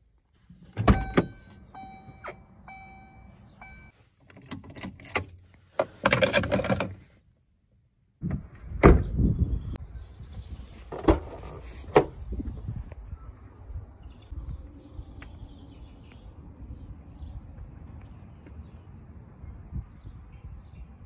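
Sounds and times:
car door shutting: 0:00.8 - 0:02.8
car warning chime: 0:00.9 - 0:03.9.

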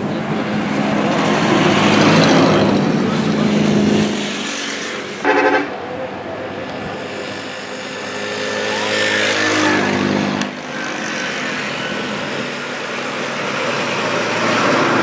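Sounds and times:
heavy truck passing: 0:00.0 - 0:15.0
vehicle horn blast: 0:05.2 - 0:05.8.

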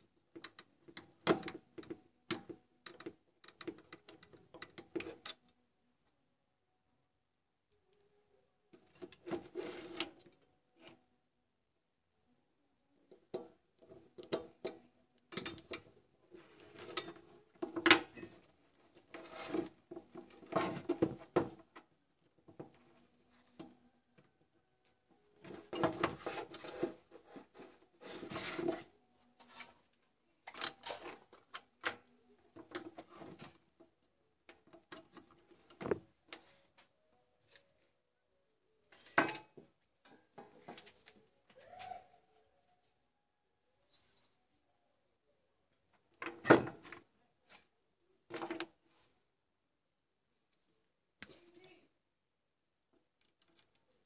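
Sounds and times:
wires rustling against metal casing: 0:08.7 - 0:11.0, 0:13.0 - 0:37.9, 0:52.9 - 0:54.0.

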